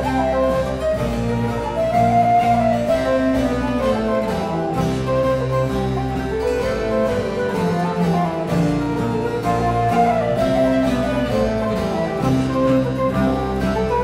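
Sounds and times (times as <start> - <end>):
bowed strings: 0.0 - 14.0
harpsichord: 0.0 - 14.0
transverse flute: 0.0 - 14.0.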